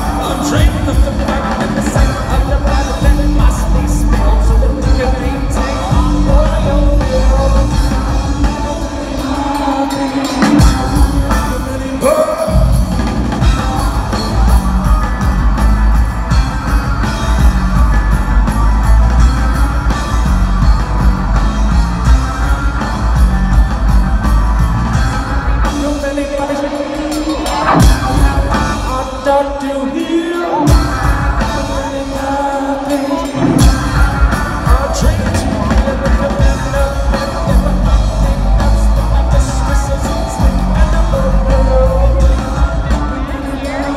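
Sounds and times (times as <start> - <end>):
vocals: 0.0 - 23.5, 24.2 - 43.9
drums: 0.0 - 43.9
live rock band playing: 0.0 - 43.9
heavy electric bass: 12.6 - 25.6.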